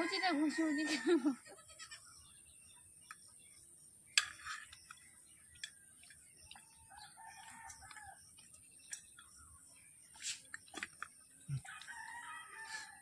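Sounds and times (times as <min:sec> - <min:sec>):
rooster crowing: 0:11.6 - 0:13.0.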